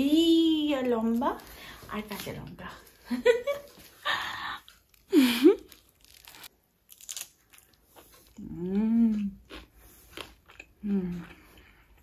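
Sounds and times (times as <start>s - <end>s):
person chewing and crunching: 4.6s - 12.0s.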